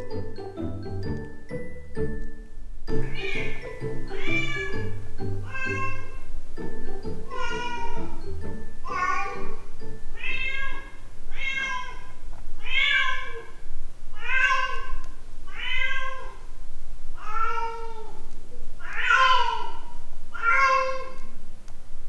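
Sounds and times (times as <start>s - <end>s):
cat meowing behind a door: 10.2s - 13.4s, 14.2s - 14.9s, 15.5s - 16.4s.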